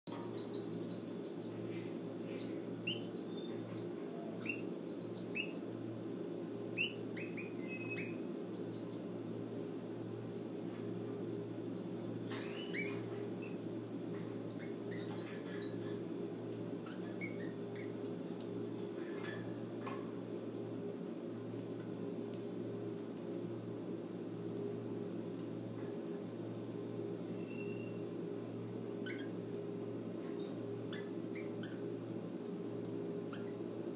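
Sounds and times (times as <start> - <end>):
chicks cheeping: 0.1 - 15.9, 29.0 - 29.4
steady low hum: 0.1 - 33.9.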